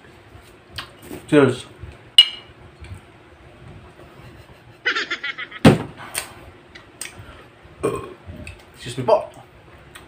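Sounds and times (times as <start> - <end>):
sharp knock: 5.6 - 6.0.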